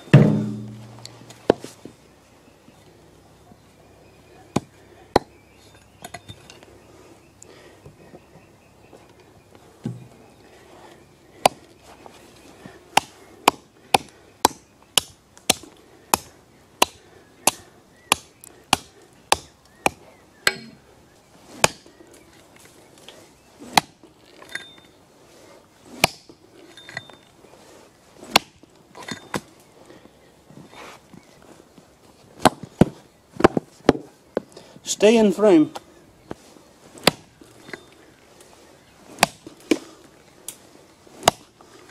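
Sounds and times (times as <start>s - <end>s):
axe chopping into stump: 0.1s - 1.0s, 21.6s - 21.8s, 23.7s - 24.0s, 26.0s - 26.3s, 28.3s - 29.3s, 37.0s - 37.3s, 39.2s - 39.8s, 41.2s - 41.5s.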